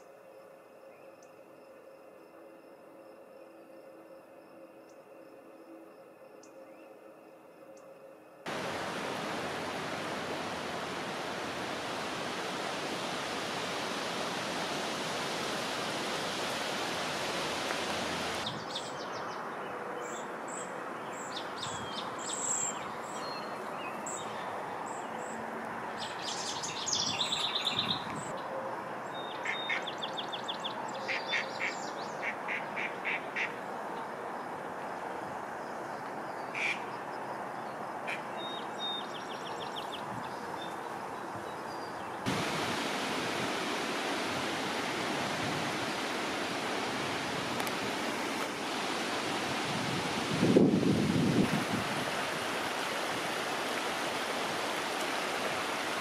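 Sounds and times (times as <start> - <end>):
rushing water: 8.5 - 28.4, 29.0 - 56.0
birds chirping: 17.9 - 25.4.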